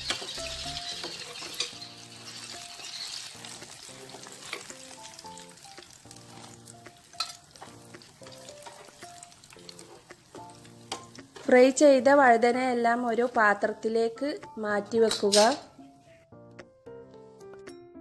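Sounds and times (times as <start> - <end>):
vegetables sizzling in oil: 0.0 - 13.6
soft background music: 0.0 - 18.0
metal skimmer clinking on pan: 7.2 - 7.4.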